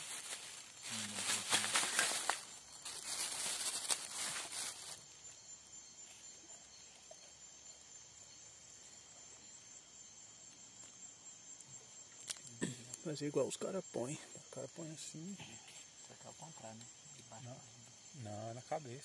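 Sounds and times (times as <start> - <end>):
rustling near microphone: 0.0 - 5.0
night insects chirring: 0.0 - 19.0.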